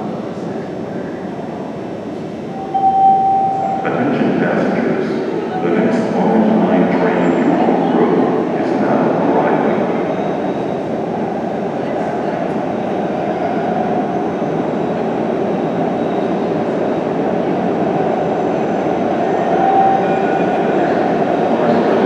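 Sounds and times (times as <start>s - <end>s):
subway train wheels rumbling: 0.0s - 22.0s
train wheel squeal: 9.8s - 17.1s.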